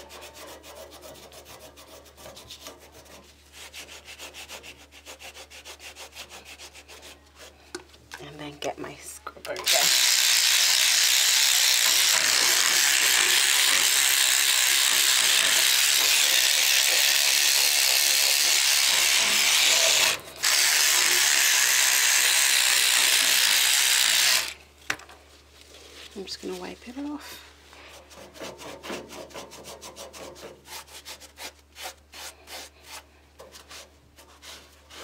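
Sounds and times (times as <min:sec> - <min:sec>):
electric scrub brush running: 0:09.7 - 0:24.6.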